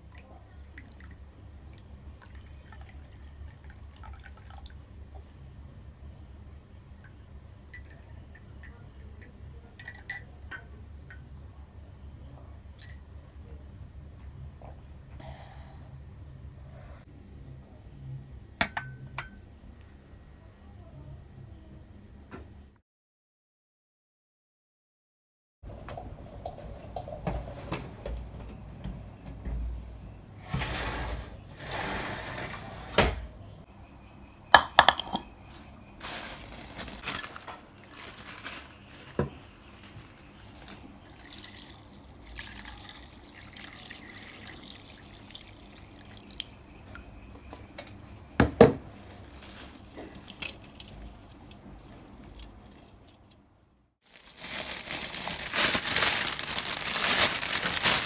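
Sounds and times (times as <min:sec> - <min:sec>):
dishes and utensils knocking: 0:34.6 - 0:35.3
crinkling rustle: 0:35.6 - 0:41.5, 0:48.9 - 0:58.0
water running and dripping: 0:41.0 - 0:47.1.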